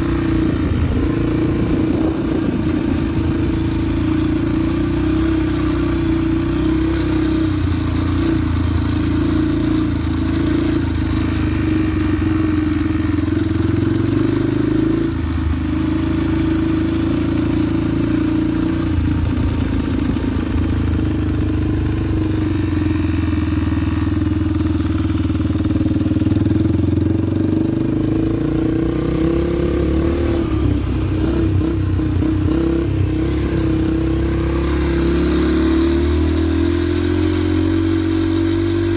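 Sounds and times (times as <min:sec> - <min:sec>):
small motorcycle engine running: 0:00.0 - 0:38.9.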